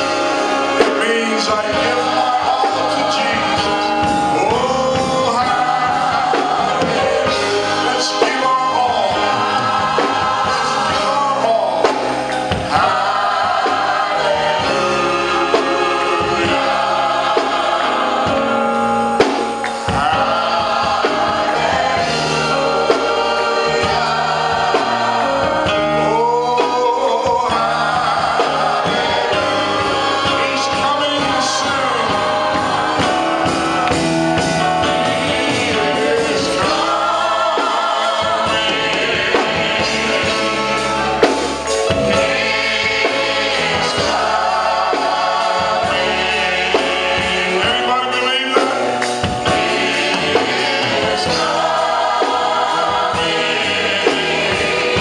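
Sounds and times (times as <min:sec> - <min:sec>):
drum hits: 0:00.0 - 0:25.8
instrumental backing: 0:00.0 - 0:55.0
voices singing together: 0:00.0 - 0:55.0.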